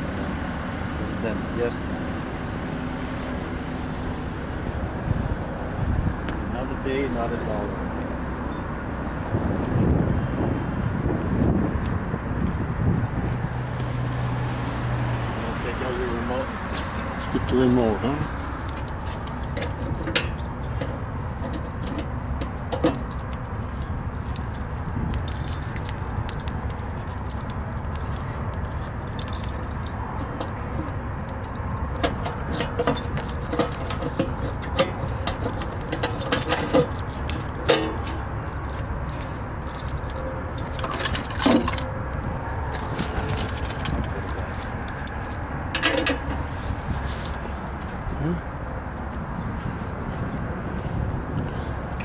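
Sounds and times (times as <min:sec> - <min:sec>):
keys jangling: 0:16.7 - 0:17.7, 0:18.3 - 0:20.6, 0:22.8 - 0:30.6, 0:31.3 - 0:42.0, 0:43.2 - 0:46.3
padlock and box lid rattling: 0:31.6 - 0:41.9.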